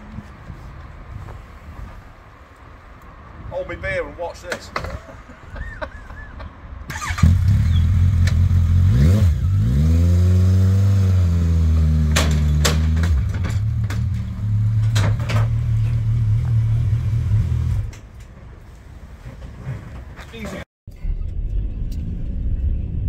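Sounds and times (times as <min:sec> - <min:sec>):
motorcycle engine revving: 0:06.9 - 0:17.9.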